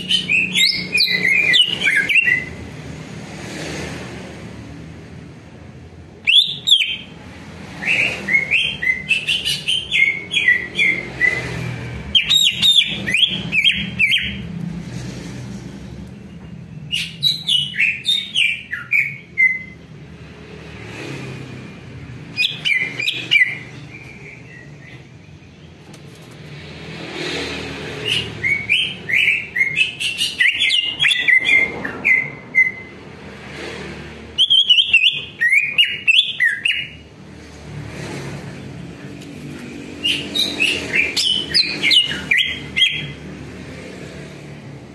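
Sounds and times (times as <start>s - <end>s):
bird chattering chirps and whistles: 0.0s - 2.6s, 6.2s - 14.5s, 16.9s - 19.8s, 27.9s - 33.0s, 34.4s - 37.0s, 40.0s - 43.2s.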